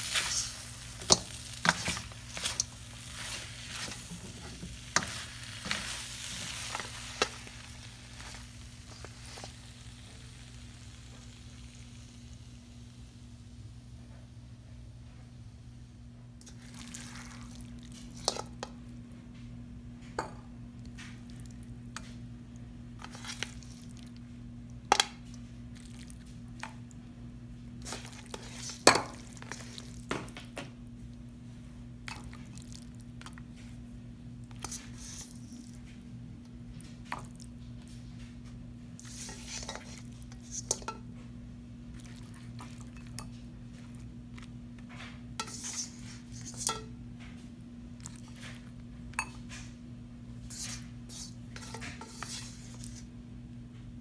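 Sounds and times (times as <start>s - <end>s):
steady low hum: 0.0s - 54.0s
metal tongs scraping a wok: 39.1s - 41.0s, 45.4s - 46.9s.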